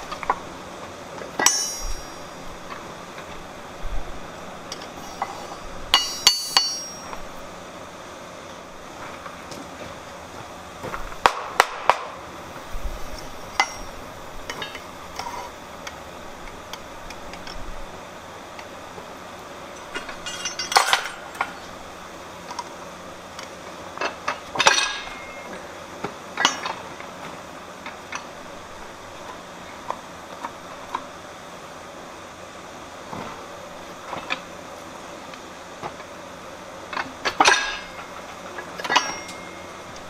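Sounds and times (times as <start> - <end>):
metal tools clinking on steel plate: 1.4 - 2.4, 4.7 - 7.2, 13.1 - 15.5, 19.7 - 21.8, 24.0 - 25.6, 37.2 - 39.8
metal clatter: 1.4 - 2.8, 4.7 - 7.2, 19.8 - 21.7, 36.9 - 39.7.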